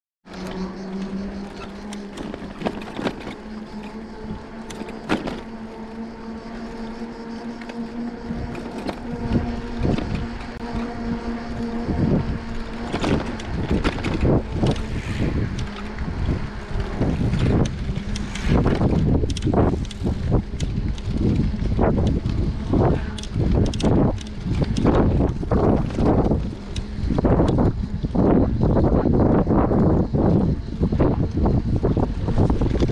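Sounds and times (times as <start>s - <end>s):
bicycle tyre hum: 0.3s - 32.9s
wind buffeting microphone: 0.3s - 32.9s.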